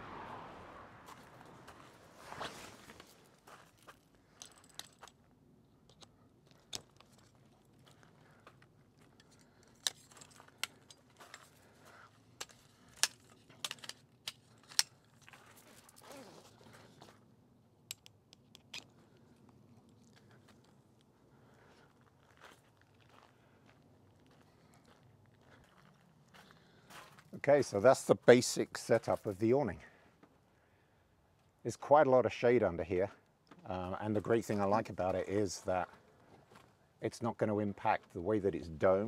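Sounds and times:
canvas rustling: 1.7s - 3.8s.

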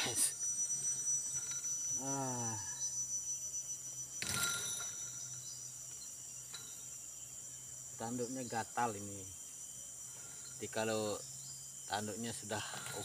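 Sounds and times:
high-pitched insect drone: 0.0s - 13.0s
man humming: 2.0s - 2.8s
deer hitting wire fence: 4.2s - 5.1s.

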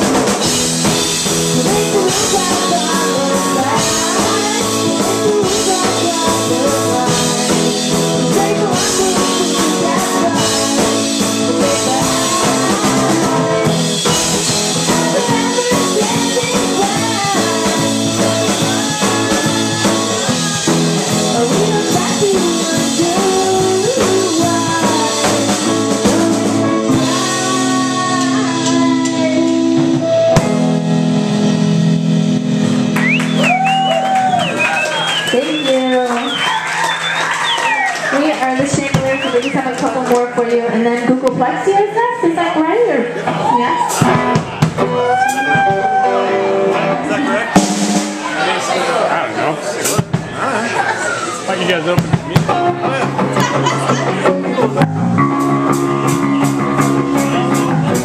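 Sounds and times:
rock band playing: 0.0s - 58.0s
person singing: 1.2s - 30.3s.

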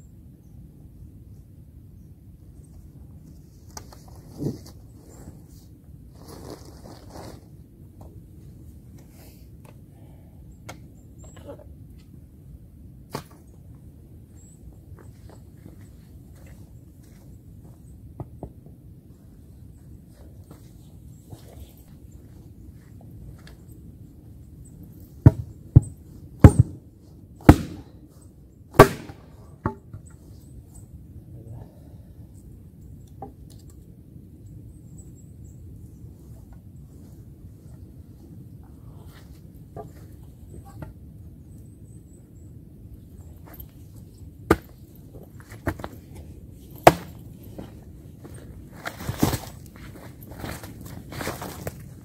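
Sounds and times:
axe chopping wood: 25.2s - 26.8s, 27.4s - 27.9s, 28.8s - 29.8s, 46.8s - 47.2s.

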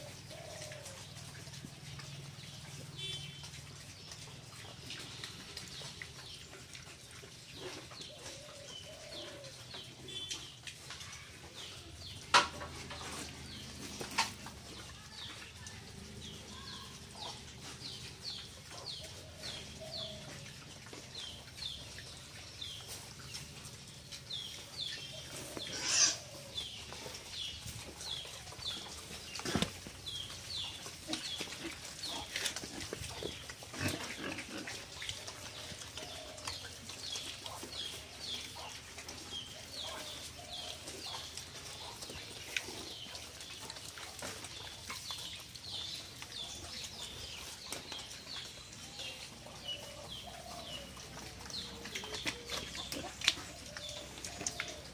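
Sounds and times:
pigs grunting: 25.5s - 27.5s, 28.1s - 44.6s, 49.1s - 54.9s
pig shrill cry: 25.7s - 26.2s.

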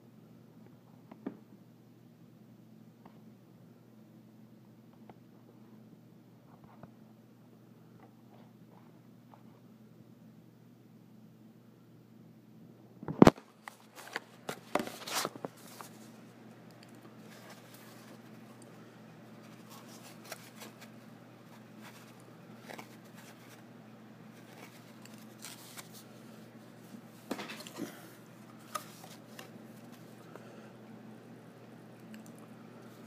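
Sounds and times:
steady low hum: 0.0s - 33.0s
paper cards rustling: 13.2s - 30.3s.

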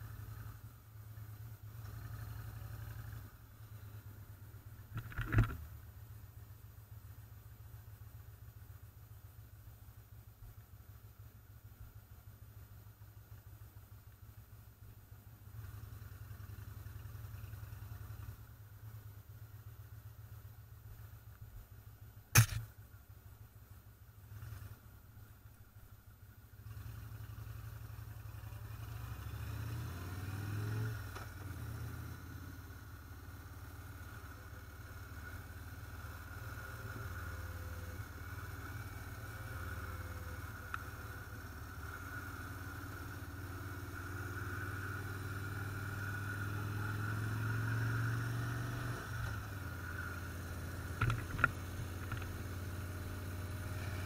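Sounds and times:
motorcycle engine: 0.0s - 8.9s, 21.9s - 54.0s
road noise: 0.0s - 54.0s
sharp click: 22.3s - 22.7s.

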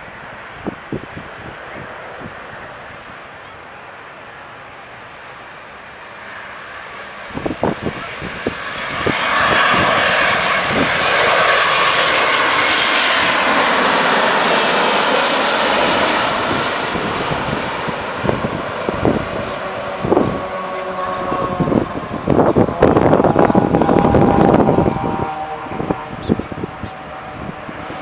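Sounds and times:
jet airliner passing overhead: 0.0s - 28.0s.

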